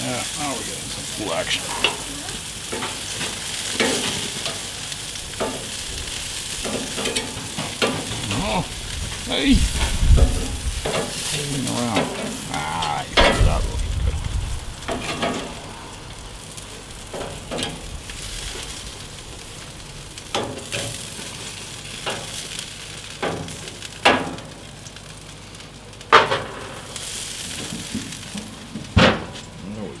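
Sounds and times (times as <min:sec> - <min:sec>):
sausages sizzling on a grill: 0:00.0 - 0:30.0.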